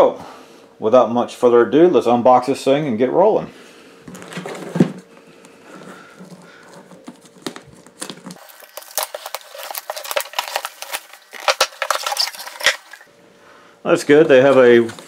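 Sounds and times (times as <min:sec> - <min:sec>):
box thump: 0:04.1 - 0:05.1
plastic shrink wrap crinkling: 0:05.6 - 0:13.1.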